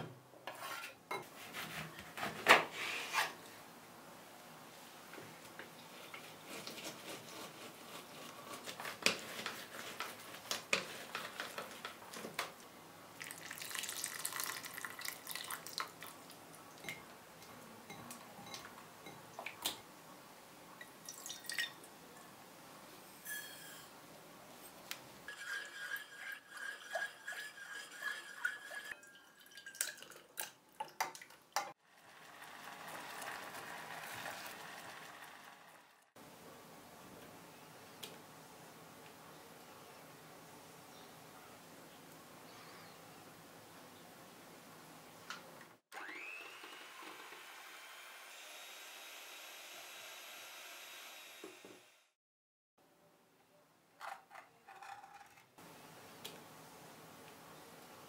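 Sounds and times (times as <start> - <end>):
electric hand mixer whining: 45.9 - 52.0.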